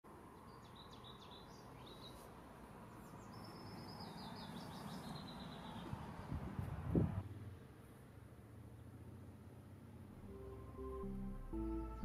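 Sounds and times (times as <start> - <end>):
songbird singing: 0.1 - 6.3.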